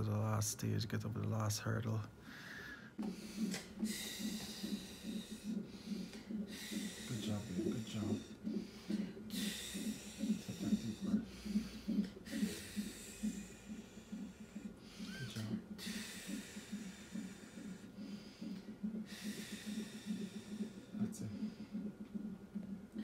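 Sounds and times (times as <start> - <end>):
woman breathing heavily: 2.2 - 21.9.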